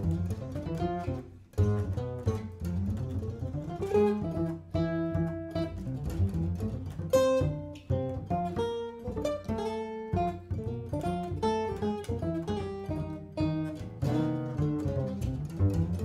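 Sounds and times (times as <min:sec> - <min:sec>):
jazz guitar: 0:00.0 - 0:16.0
plucked double bass: 0:00.0 - 0:16.0.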